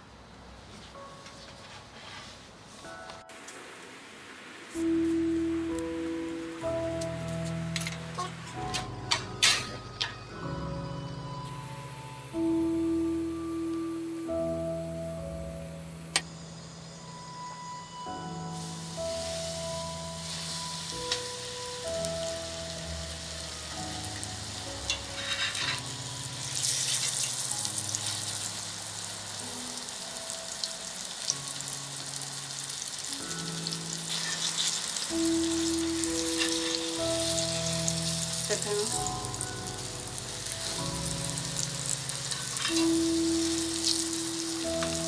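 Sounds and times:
meat sizzling in hot oil: 0:18.4 - 0:45.0.

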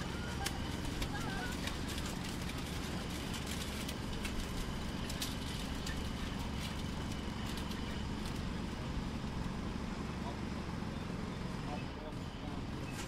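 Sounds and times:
breaking rock cracking: 0:00.0 - 0:08.5.

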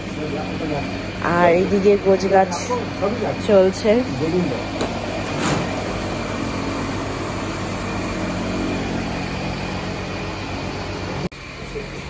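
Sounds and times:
low mechanical hum: 0:00.0 - 0:12.0.

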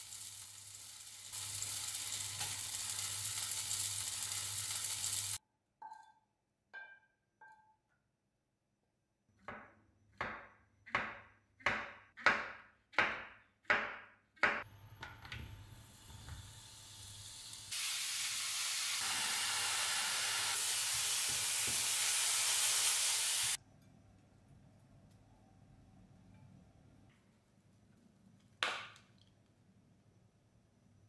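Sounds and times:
mushrooms sizzling in a frying pan: 0:00.0 - 0:05.4, 0:15.4 - 0:23.6.

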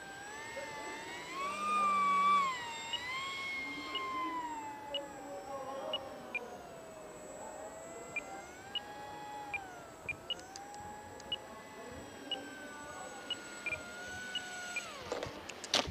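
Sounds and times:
electric motor whining: 0:00.0 - 0:15.9.

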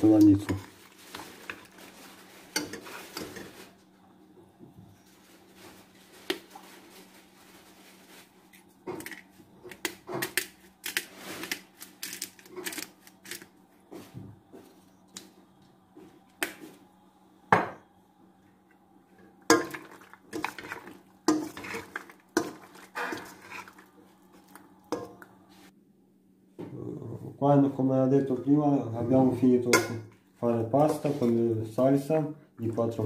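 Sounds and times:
spoon clinking and scraping pot: 0:02.5 - 0:03.6, 0:19.5 - 0:23.9
metal spoon stirring pasta in sauce: 0:19.5 - 0:25.2.

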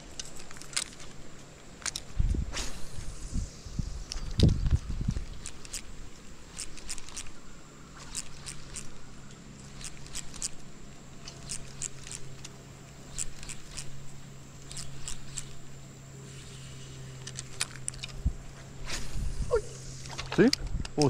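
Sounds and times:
fishing reel clicking: 0:04.0 - 0:15.6.

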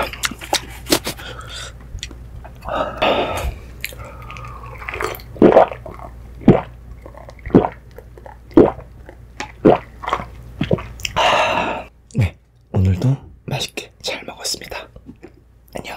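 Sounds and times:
person gulping a drink: 0:02.0 - 0:11.2.

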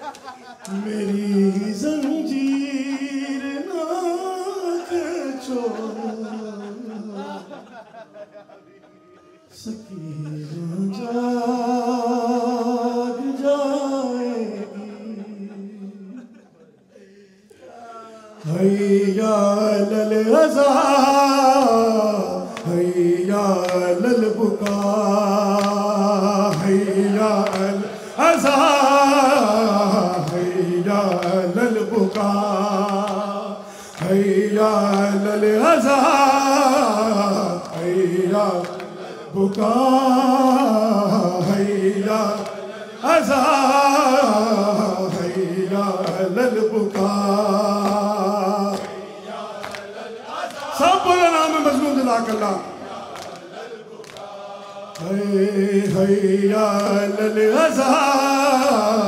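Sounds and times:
man chanting into a microphone: 0:00.6 - 0:07.6, 0:09.5 - 0:16.4, 0:17.1 - 0:49.4, 0:50.4 - 0:53.1, 0:55.0 - 0:59.0.

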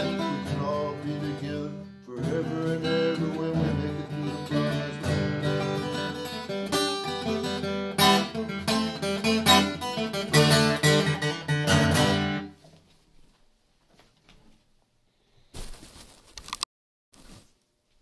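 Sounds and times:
acoustic guitar strumming chords: 0:00.0 - 0:12.5.

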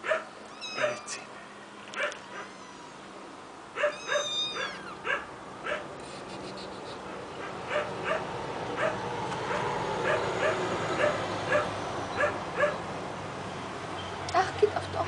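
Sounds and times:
kittens mewing: 0:00.5 - 0:01.4, 0:02.1 - 0:03.1, 0:03.8 - 0:05.3.

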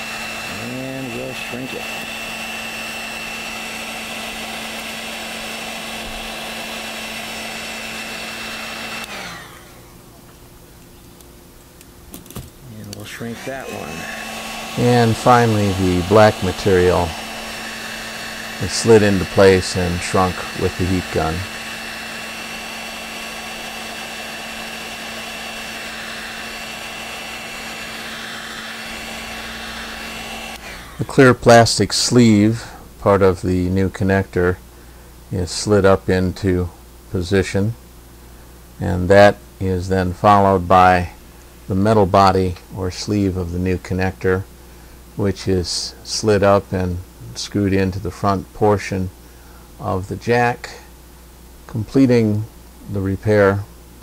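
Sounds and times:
heat gun blowing hot air: 0:00.0 - 0:10.0, 0:12.9 - 0:32.8
fan winding down whine: 0:00.0 - 0:10.9, 0:12.6 - 0:34.6.

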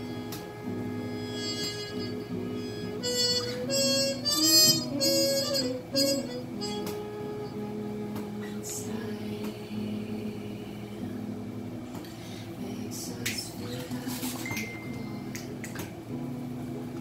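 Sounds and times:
acoustic guitar: 0:00.0 - 0:17.0
woman singing: 0:03.5 - 0:15.8.

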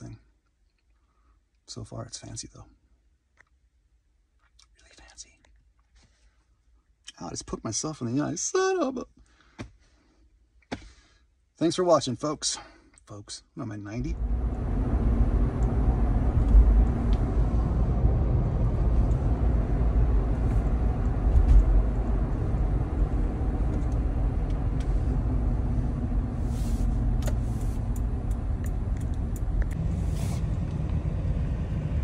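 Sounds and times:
road and engine rumble: 0:13.9 - 0:32.0.

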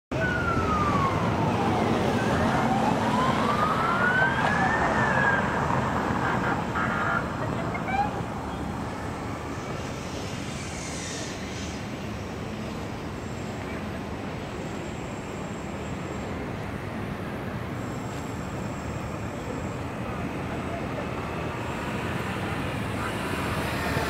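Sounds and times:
police siren wailing: 0:00.1 - 0:08.6
traffic noise: 0:00.1 - 0:24.0.

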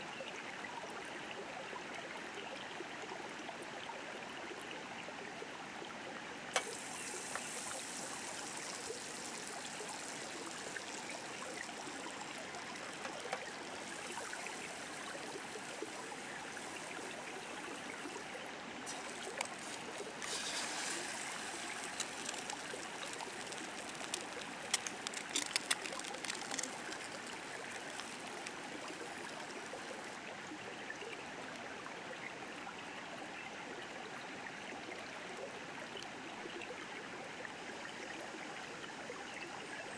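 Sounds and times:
river flowing: 0:03.0 - 0:32.1
egg sizzling in a pan: 0:06.5 - 0:30.2
hot fat sizzling in a frying pan: 0:06.5 - 0:30.2.

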